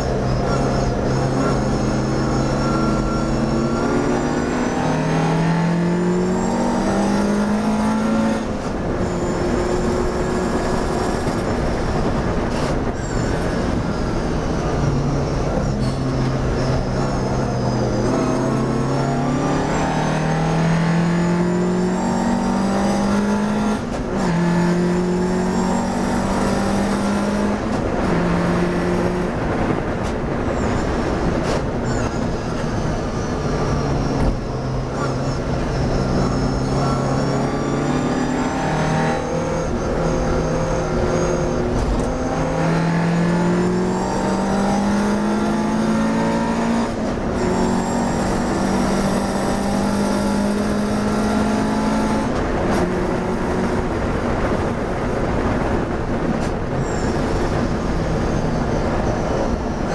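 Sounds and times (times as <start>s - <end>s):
racing car engine shifting gears: 0.0s - 59.9s.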